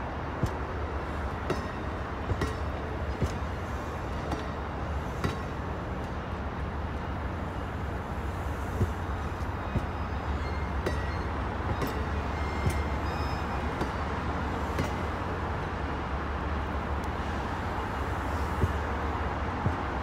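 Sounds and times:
wheels clicking over rail joints: 0.0s - 6.8s
train coaches rumbling past: 0.0s - 20.0s.

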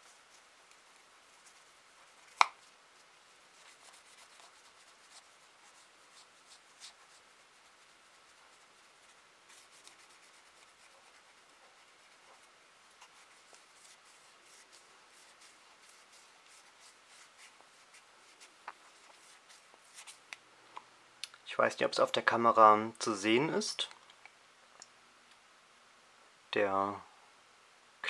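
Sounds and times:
cotton pad rubbing plastic: 3.4s - 20.2s.

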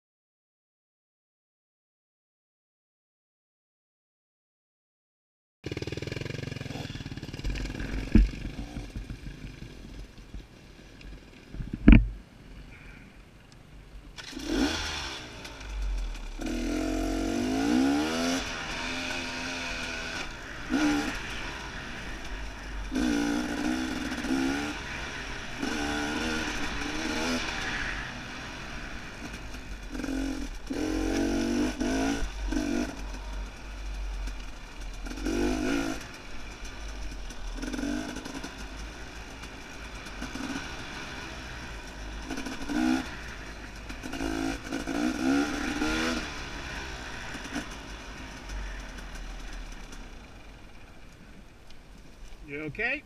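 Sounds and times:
dirt bike engine revving: 5.7s - 10.0s, 14.2s - 50.8s
wind rumble on microphone: 11.5s - 12.2s.

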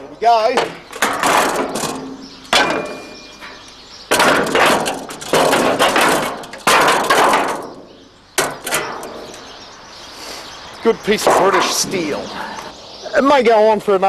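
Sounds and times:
sheet metal panel clanging: 0.0s - 9.5s
metal ringing: 0.7s - 9.3s.

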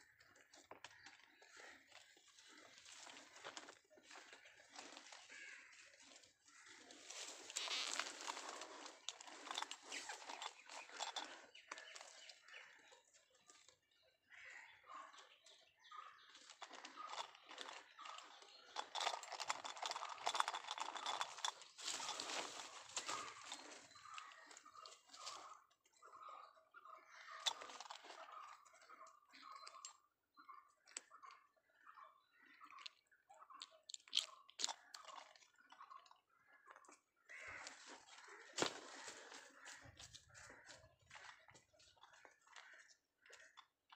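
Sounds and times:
undergrowth rustling and crackling: 2.2s - 12.8s, 16.4s - 25.5s, 37.4s - 41.4s
leaves and stems crackling: 6.1s - 11.4s, 19.0s - 24.2s.

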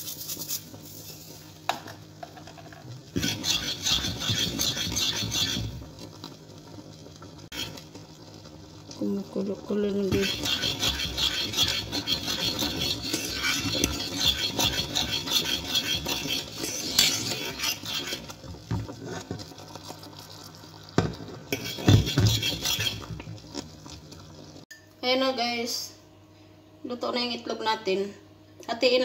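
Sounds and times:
metal utensil scraping a saucepan: 3.1s - 5.9s, 7.5s - 7.9s, 9.9s - 19.5s, 21.5s - 23.2s.

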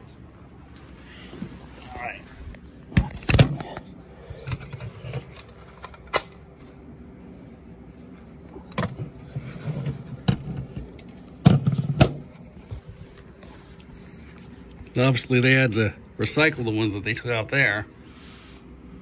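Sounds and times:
rustling handling noise: 4.6s - 15.0s.

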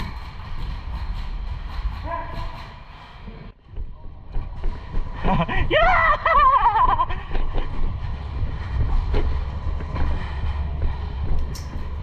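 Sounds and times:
gear rattling: 0.0s - 3.6s
footsteps: 0.0s - 12.0s
body-worn camera jostling rumble: 3.6s - 12.0s.

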